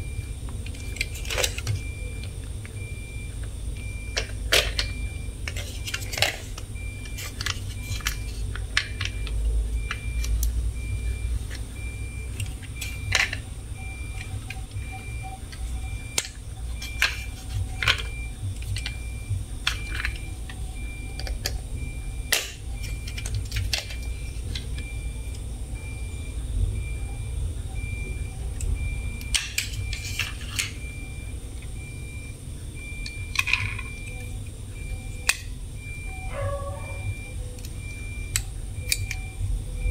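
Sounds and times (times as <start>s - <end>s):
faint pulsing high tone: 6.7s - 30.0s, 30.7s - 39.9s.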